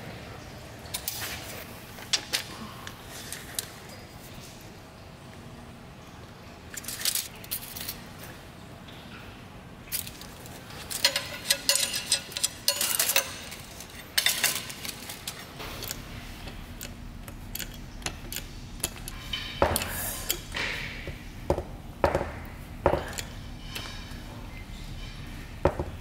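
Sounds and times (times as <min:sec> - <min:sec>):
low steady hum: 0:00.0 - 0:26.0
metal hand tools clinking: 0:10.8 - 0:16.0.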